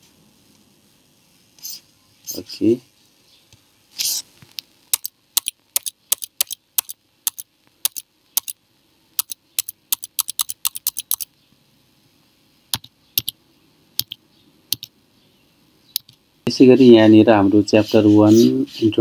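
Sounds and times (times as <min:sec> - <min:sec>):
keyboard keys clicking: 0:09.2 - 0:11.3, 0:12.8 - 0:13.4, 0:14.0 - 0:14.9.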